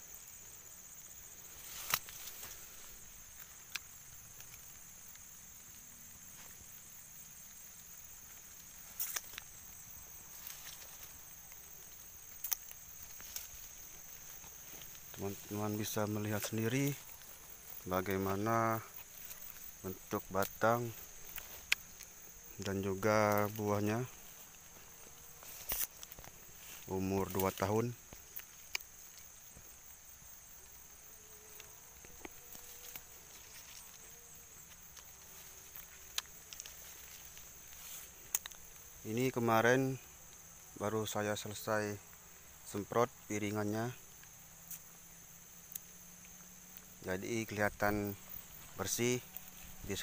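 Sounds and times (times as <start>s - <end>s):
high-pitched insect drone: 0.0s - 50.0s
footsteps on dry fronds and grass: 1.3s - 39.4s
soft clicks and rustles: 1.4s - 6.8s, 7.4s - 29.9s, 30.5s - 39.0s.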